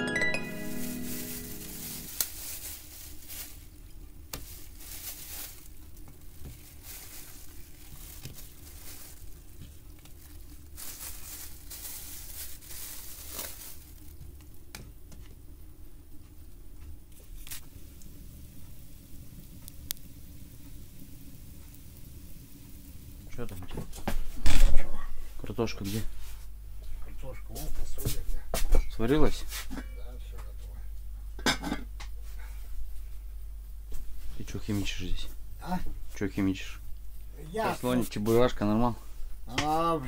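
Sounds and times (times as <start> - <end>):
plastic bag rustling: 0.4 - 14.3, 17.1 - 24.8.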